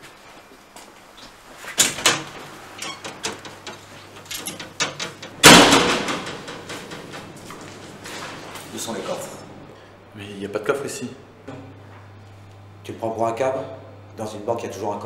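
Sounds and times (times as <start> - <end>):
glass door banging shut: 1.8 - 7.7.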